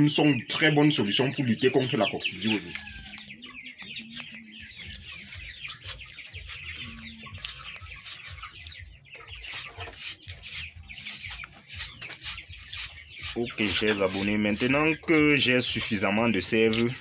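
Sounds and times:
chickens clucking and peeping: 0:00.0 - 0:17.0
knife scraping aloe leaf: 0:04.0 - 0:08.7, 0:09.4 - 0:15.0, 0:15.8 - 0:17.0.

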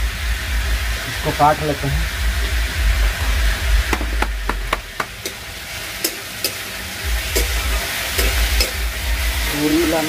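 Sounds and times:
food sizzling: 0:00.0 - 0:10.0
metal spatula clinking on pan: 0:05.2 - 0:06.7, 0:07.3 - 0:07.6, 0:08.2 - 0:08.9.

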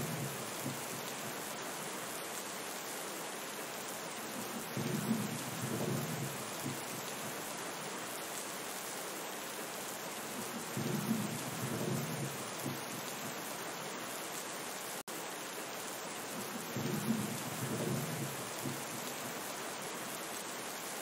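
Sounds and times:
low rolls of thunder: 0:00.0 - 0:01.0, 0:04.4 - 0:07.0, 0:10.5 - 0:13.3, 0:16.4 - 0:19.1
steady rain falling: 0:00.0 - 0:21.0.

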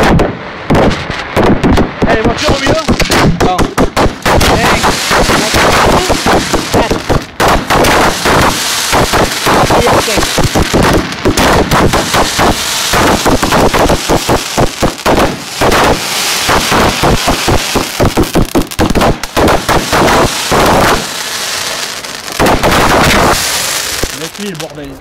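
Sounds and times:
fireworks bangs and crackling: 0:00.0 - 0:25.0
firework hiss: 0:02.1 - 0:24.8.

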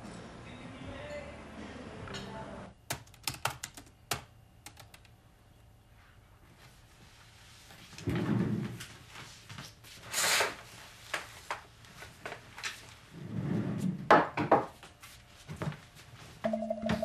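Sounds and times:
chair pushed back: 0:08.0 - 0:08.8.

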